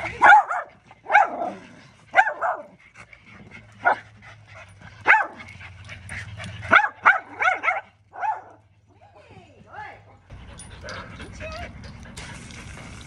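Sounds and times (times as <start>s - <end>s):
dogs barking: 0.1s - 2.8s, 3.7s - 4.2s, 4.9s - 8.7s.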